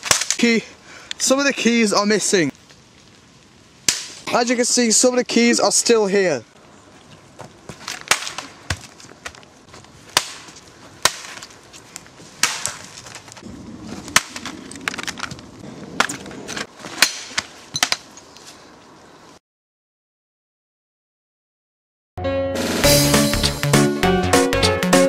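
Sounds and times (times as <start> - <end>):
sharp cracks and snaps: 0.0 - 1.2, 2.5 - 4.3.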